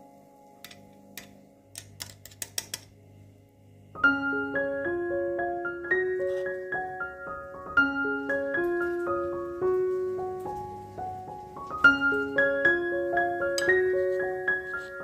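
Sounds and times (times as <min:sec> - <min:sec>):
piano music: 0:03.8 - 0:15.0.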